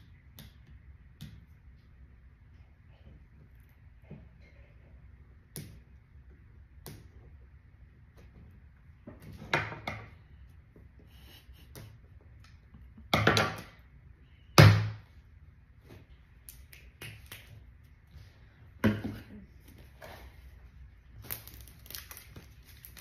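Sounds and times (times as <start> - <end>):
plastic egg cracking: 21.2 - 23.0.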